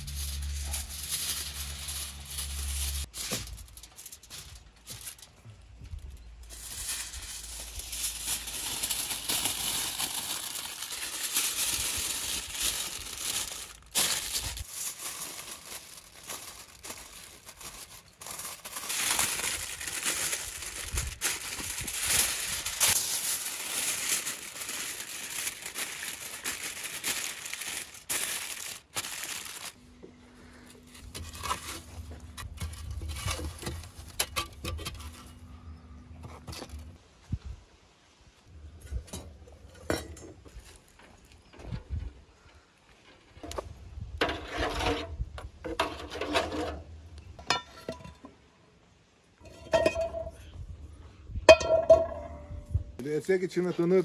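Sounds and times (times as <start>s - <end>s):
aluminium foil crinkling: 0.0s - 29.8s, 30.5s - 35.6s
poker raking embers: 0.0s - 29.8s, 30.4s - 35.5s.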